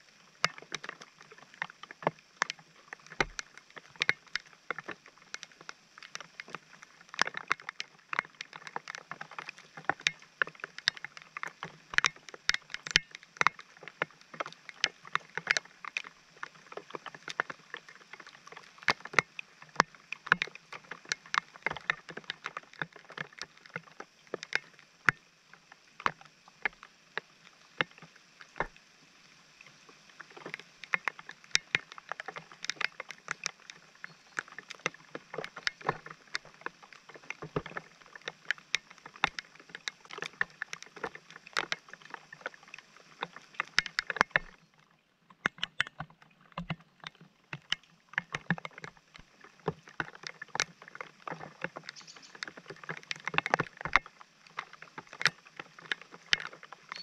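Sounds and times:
raindrops tapping nearby: 0:00.0 - 0:28.8, 0:29.6 - 0:57.0
rain on wet paving: 0:00.6 - 0:24.9.

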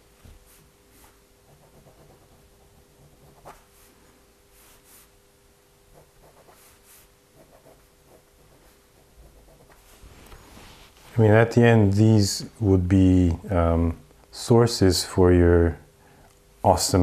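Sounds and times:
faint steady hum: 0:00.0 - 0:17.0
pen scratching on paper: 0:00.5 - 0:03.9, 0:05.9 - 0:09.8.

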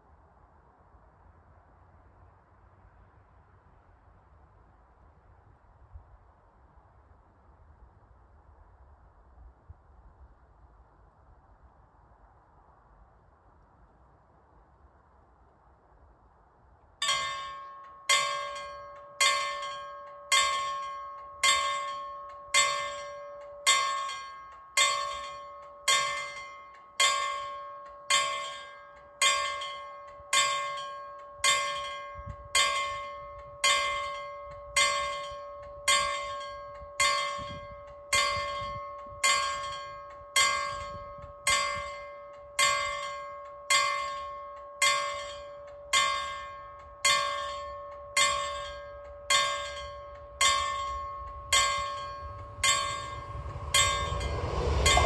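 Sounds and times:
level crossing warning bells: 0:17.0 - 0:55.0.

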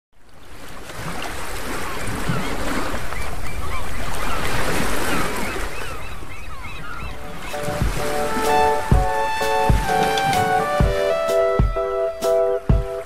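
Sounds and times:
surf washing onto beach: 0:07.4 - 0:11.9.

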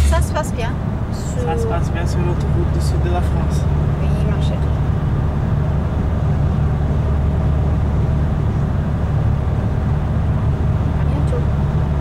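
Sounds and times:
car engine and road noise: 0:00.0 - 0:12.0.

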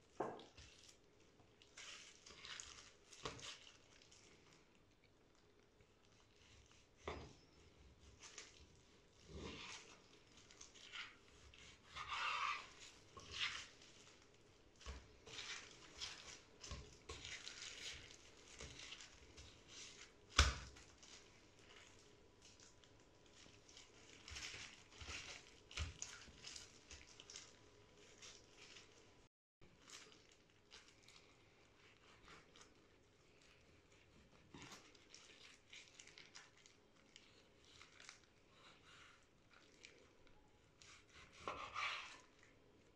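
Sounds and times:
knife slicing on cutting board: 0:40.9 - 0:42.3.

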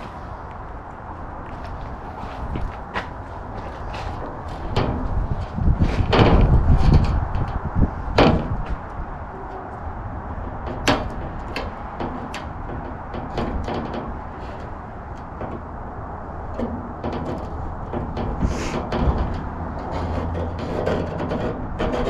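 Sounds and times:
metal sheet wobbling thumps: 0:04.2 - 0:08.8
clicks and taps on metal: 0:10.4 - 0:22.0.

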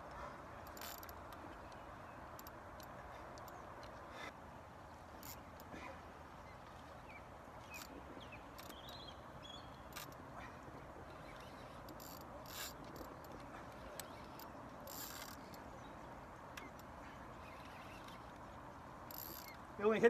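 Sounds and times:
steady low hiss: 0:00.0 - 0:20.0
fishing reel clicking: 0:11.3 - 0:13.4, 0:14.0 - 0:15.6, 0:19.0 - 0:19.6.

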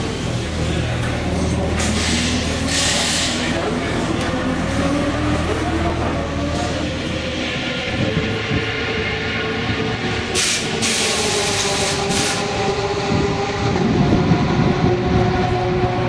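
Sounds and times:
steady mechanical drone: 0:00.0 - 0:16.0
compressed air hiss: 0:10.4 - 0:12.4.

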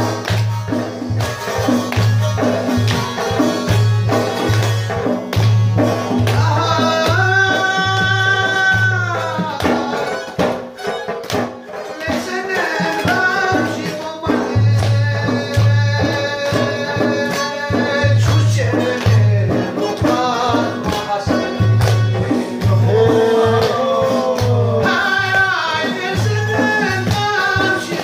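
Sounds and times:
drum beating low rhythm: 0:00.0 - 0:10.8.

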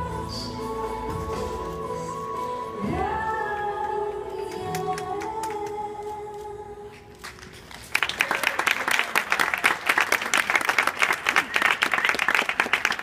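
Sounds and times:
music with long sung notes: 0:00.0 - 0:07.3
audience applause: 0:07.3 - 0:13.0.

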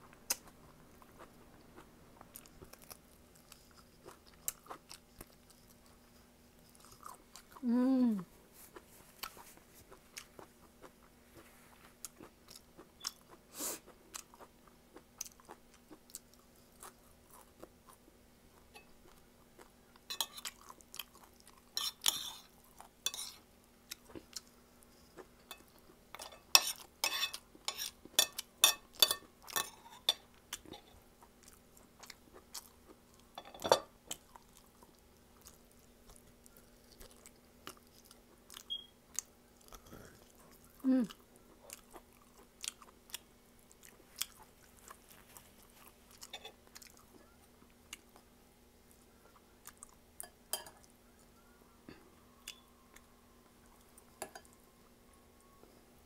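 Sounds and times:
wet chewing: 0:34.1 - 0:48.3.

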